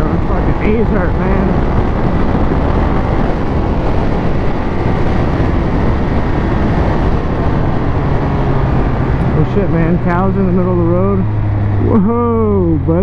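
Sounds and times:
motorcycle engine cruising: 0.0s - 13.0s
wind rush on microphone: 0.0s - 13.0s.

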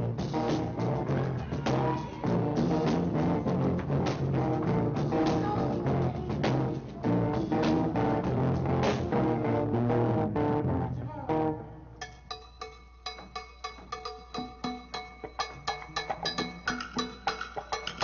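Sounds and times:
band playing live: 0.0s - 11.6s.

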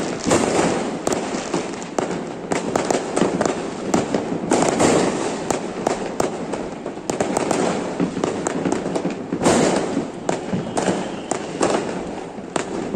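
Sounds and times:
fireworks bangs and crackles: 0.0s - 12.9s.

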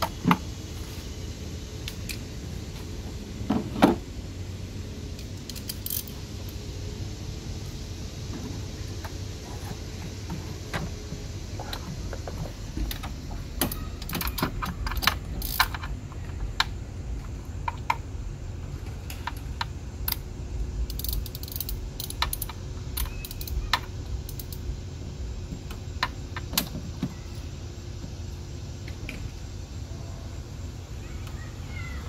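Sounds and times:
ratchet clicking: 5.2s - 6.6s, 12.9s - 16.0s, 19.1s - 24.7s.

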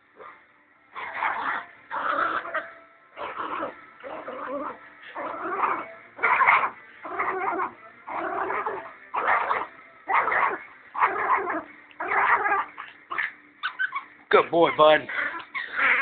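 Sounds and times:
small dog growling and whining: 0.2s - 14.1s, 15.1s - 16.0s.

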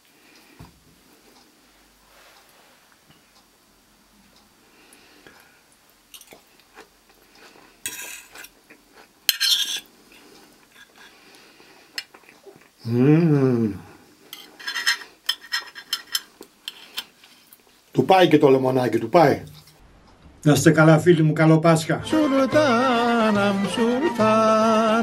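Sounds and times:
cutlery clinking on a plate: 7.9s - 8.5s, 9.3s - 9.9s, 14.3s - 17.1s
person humming: 12.8s - 14.0s.

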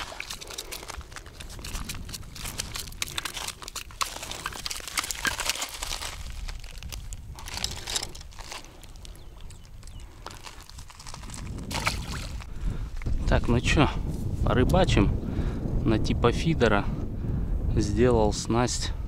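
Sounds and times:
footsteps crunching on gravel: 0.0s - 12.5s
stones clicking underfoot: 0.0s - 13.2s.

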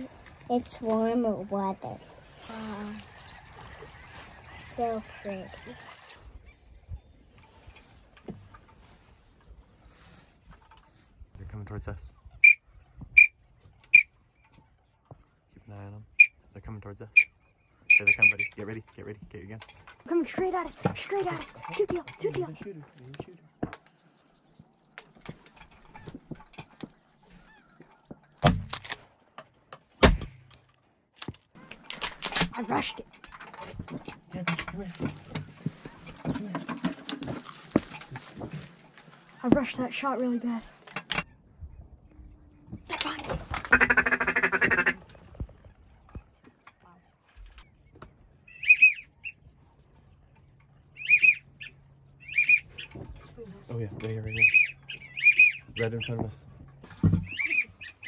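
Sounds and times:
whistled duck calls: 12.4s - 14.2s, 16.1s - 16.4s, 17.1s - 18.6s, 48.5s - 49.4s, 51.0s - 52.9s, 54.3s - 55.8s, 57.3s - 58.0s
faint goose honking: 16.0s - 18.8s, 43.6s - 45.0s, 48.4s - 49.4s, 50.9s - 53.0s, 54.2s - 56.5s, 57.3s - 58.0s.

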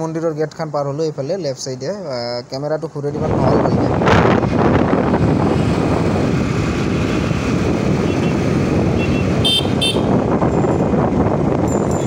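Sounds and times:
road noise: 0.0s - 12.0s
wind buffeting microphone: 3.1s - 12.0s
motorcycle engine: 4.5s - 12.0s.

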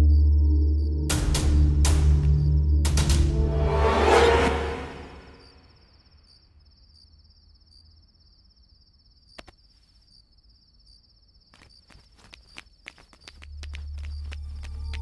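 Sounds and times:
crickets chirping: 0.0s - 2.8s, 4.0s - 15.0s
low hum: 0.0s - 5.7s.

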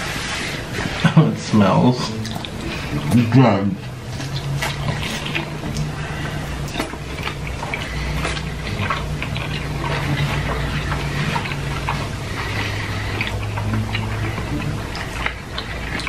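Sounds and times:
people chewing food: 0.0s - 16.0s
steady low hum: 0.0s - 16.0s
wet mouth clicks and smacks: 2.1s - 16.0s.

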